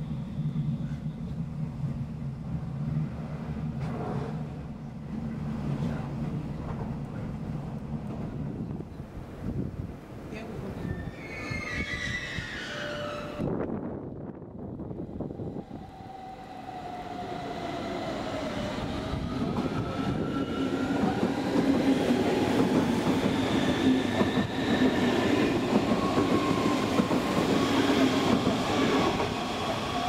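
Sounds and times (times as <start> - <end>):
wheels rumbling on rail: 0.0 - 11.0.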